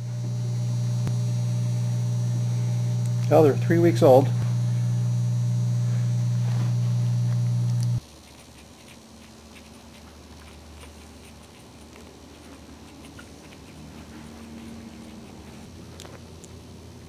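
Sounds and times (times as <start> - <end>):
electrical mains hum: 0.0 - 17.0
soft rustles and clicks: 6.2 - 9.0.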